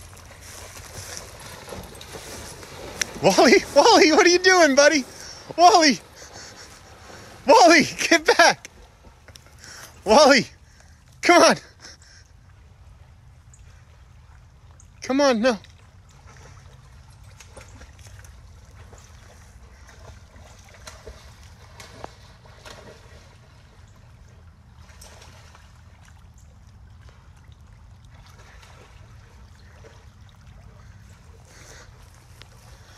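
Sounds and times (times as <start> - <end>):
small waves lapping: 0.0 - 32.9
faint knocks or splashes: 15.6 - 23.8, 24.7 - 31.2.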